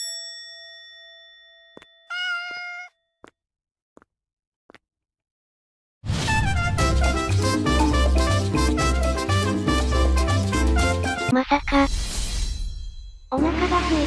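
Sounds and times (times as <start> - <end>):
bell-like ding: 0.0 - 2.2
cat meow: 2.1 - 2.9
upbeat jazzy music with brass: 6.3 - 11.3.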